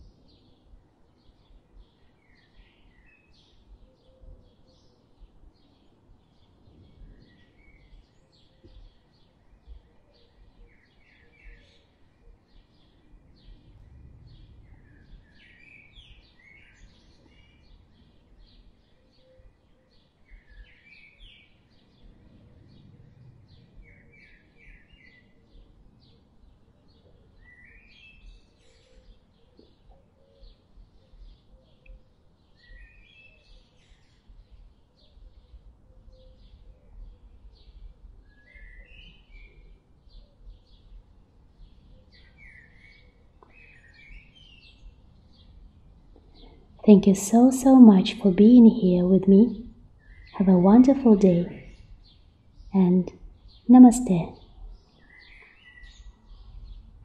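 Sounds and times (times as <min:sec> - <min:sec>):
small birds chirping: 0:00.0 - 0:57.0
low background rumble: 0:13.1 - 0:15.4, 0:21.9 - 0:24.0.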